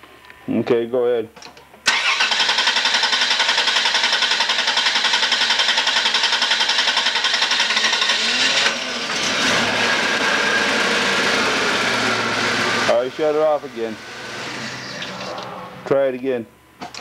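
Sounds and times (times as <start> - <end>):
car engine cranking: 1.9 - 15.8
car engine idling: 4.6 - 15.9.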